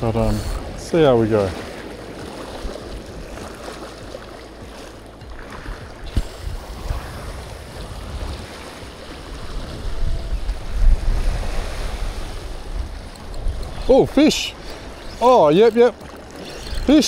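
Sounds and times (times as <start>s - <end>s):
wind rumbling on microphone: 0.0s - 17.0s
small waves lapping over rock: 0.6s - 13.1s.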